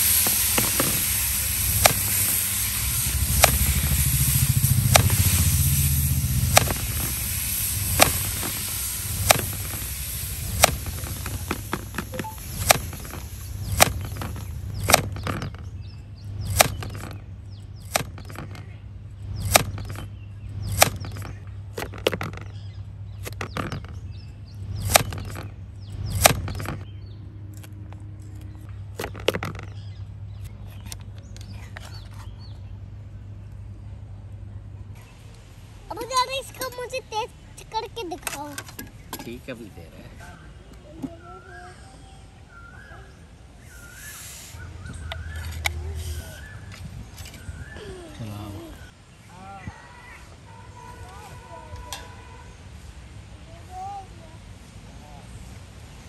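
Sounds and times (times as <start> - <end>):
steady low hum: 0.0 - 35.9.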